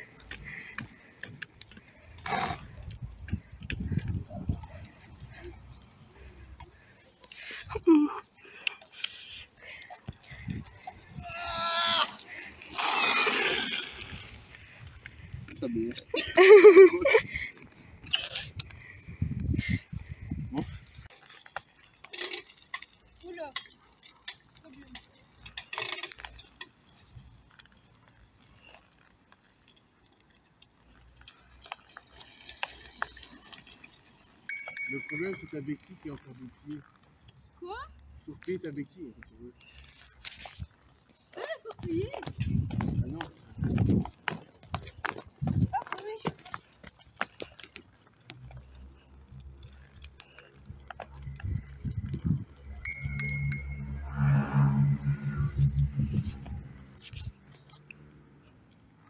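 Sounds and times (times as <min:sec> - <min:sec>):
bicycle clicking and rattling: 0:00.0 - 0:59.0
bicycle bell ringing: 0:34.4 - 0:35.9, 0:52.6 - 0:54.4.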